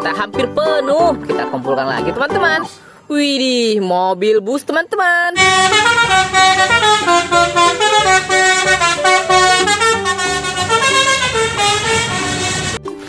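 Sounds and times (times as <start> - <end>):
musical air horn playing a tune: 5.4 - 12.9.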